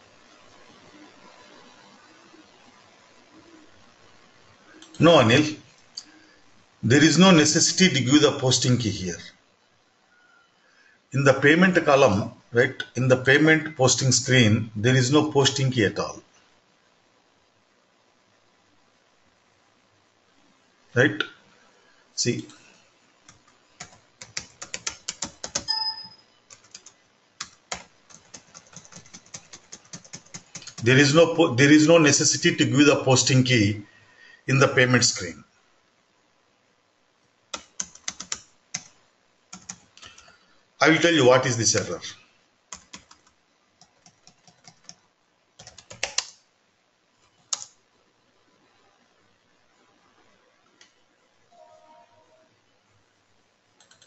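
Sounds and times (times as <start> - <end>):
computer keyboard typing: 23.3 - 30.9, 37.5 - 40.3, 42.7 - 45.0, 45.6 - 46.4, 47.3 - 47.8, 53.8 - 54.0.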